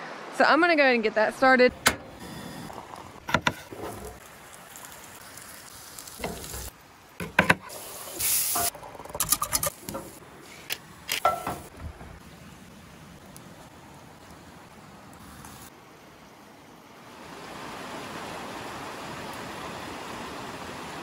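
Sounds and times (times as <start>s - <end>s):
cookware clinking and knocking: 11.2s - 11.7s.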